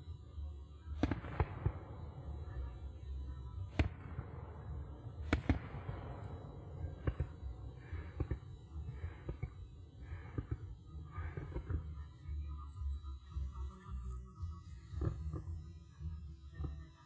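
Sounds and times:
low steady rumble: 0:00.0 - 0:17.0
fireworks bursting: 0:00.9 - 0:09.6
sharp firework bangs: 0:03.7 - 0:08.4.

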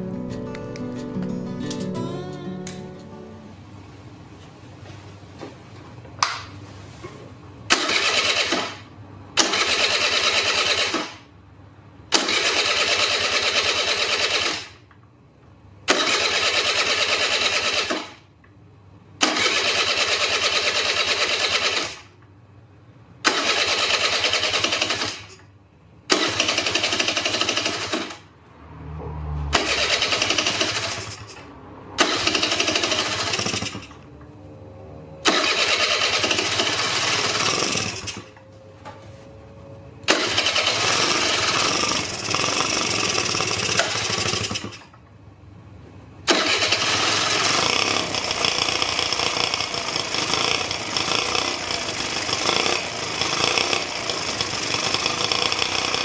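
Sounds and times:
electric starter cranking engine: 0:07.7 - 0:11.2, 0:12.1 - 0:14.8, 0:15.9 - 0:18.2, 0:19.2 - 0:22.2, 0:23.2 - 0:25.4, 0:26.1 - 0:28.2, 0:29.5 - 0:34.0, 0:35.2 - 0:38.4, 0:40.1 - 0:44.9, 0:46.2 - 0:56.0.

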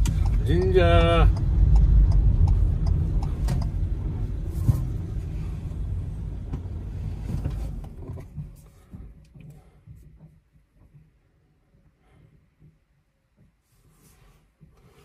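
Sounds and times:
vehicle rumble from inside: 0:00.0 - 0:10.0.

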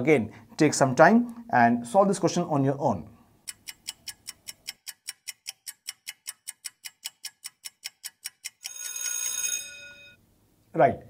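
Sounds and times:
clock-like ticking: 0:03.4 - 0:08.9
ringing tone: 0:08.7 - 0:10.2.

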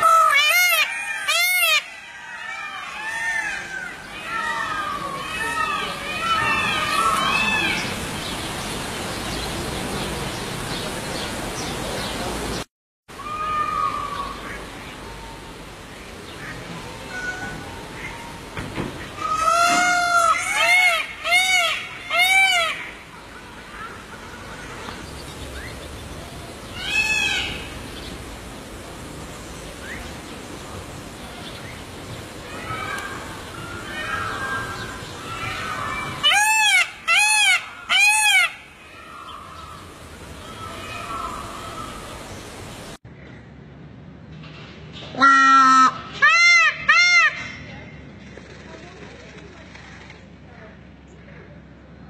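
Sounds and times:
peacock calling: 0:00.0 - 0:08.4, 0:16.3 - 0:25.8, 0:26.4 - 0:28.2, 0:32.2 - 0:42.6, 0:45.2 - 0:47.6
steady outdoor hiss: 0:00.0 - 0:52.0.

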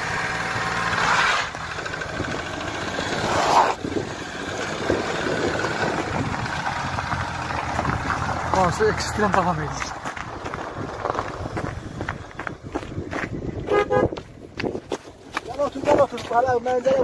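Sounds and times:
off-road vehicle engine running: 0:00.0 - 0:17.0.

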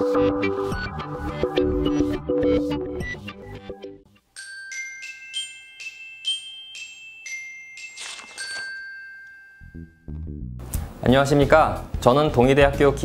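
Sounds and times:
glockenspiel-like bell jingle: 0:04.4 - 0:10.4.

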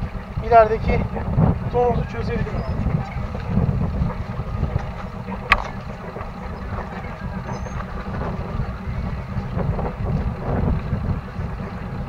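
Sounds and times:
boat engine idling: 0:00.0 - 0:12.0.

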